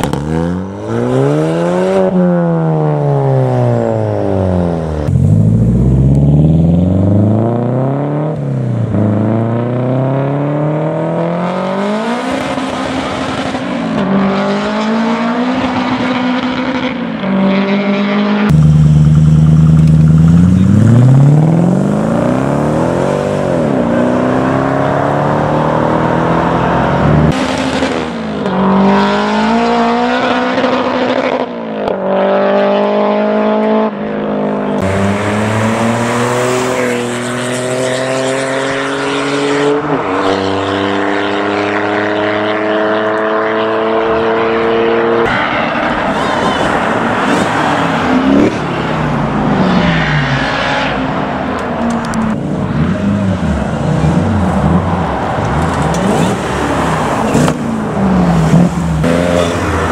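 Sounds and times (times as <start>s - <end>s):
car engines accelerating hard: 0.0s - 59.9s.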